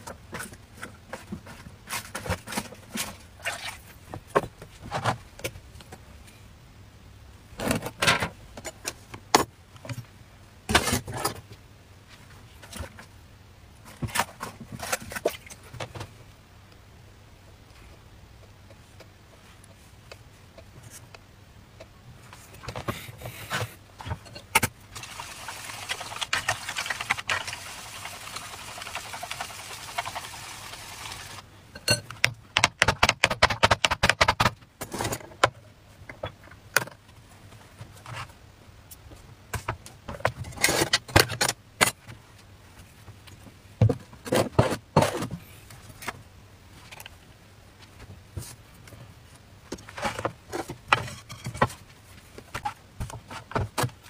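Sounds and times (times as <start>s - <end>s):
steady hiss: 24.8s - 31.8s.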